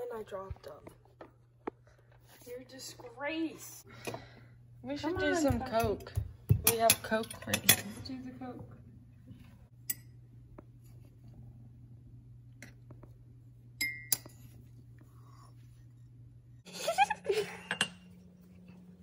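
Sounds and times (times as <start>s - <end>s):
metal spoon clinking against mug: 13.8s - 14.3s.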